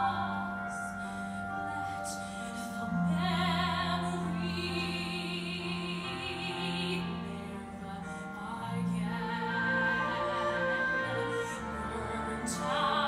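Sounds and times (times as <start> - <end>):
instrumental accompaniment: 0.0 - 13.0
woman singing ballad: 0.0 - 13.0.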